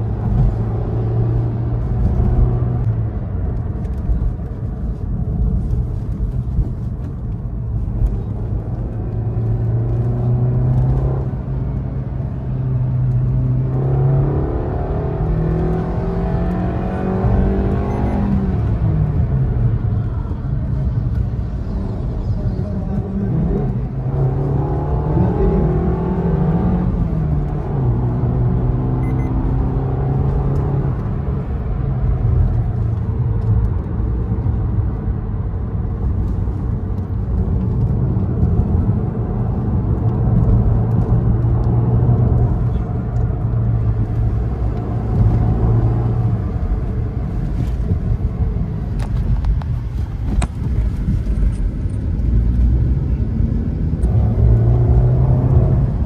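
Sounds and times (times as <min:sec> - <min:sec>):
road noise inside car: 0:00.0 - 0:56.0
car engine revving: 0:21.7 - 0:34.9, 0:35.8 - 0:56.0.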